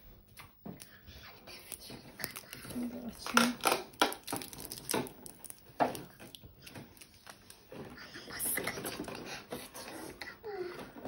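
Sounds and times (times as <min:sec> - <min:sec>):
pencil packaging clicks: 0:01.5 - 0:07.6
packaging rustle: 0:01.6 - 0:07.8.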